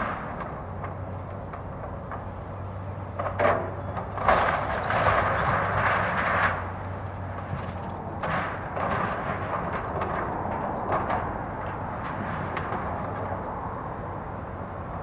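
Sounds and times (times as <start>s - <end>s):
excavator diesel engine: 0.0s - 15.0s
debris crunching and clattering: 3.1s - 13.4s.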